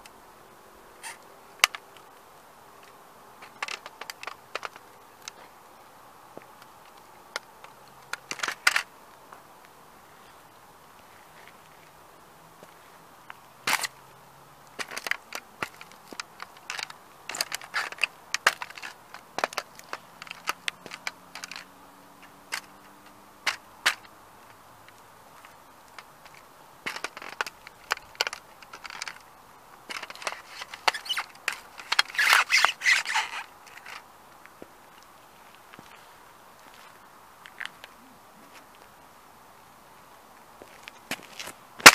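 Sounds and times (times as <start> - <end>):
toy car cracking under shoe: 1.0 - 2.1, 2.8 - 5.5, 6.4 - 8.9, 13.6 - 14.0, 14.7 - 34.6, 40.6 - 41.9.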